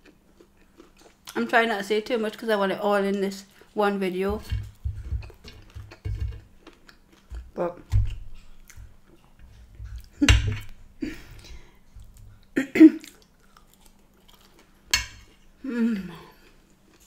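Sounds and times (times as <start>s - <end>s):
chewing: 0.0s - 1.5s, 4.7s - 10.2s, 11.2s - 15.4s, 16.3s - 17.0s.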